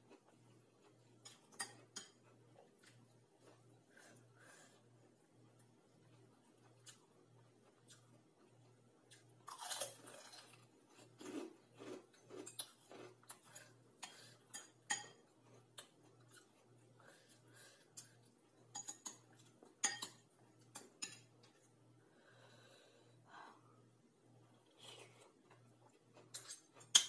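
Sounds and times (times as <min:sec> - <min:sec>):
spoon and fork scraping ceramic bowl: 0:19.8 - 0:20.2.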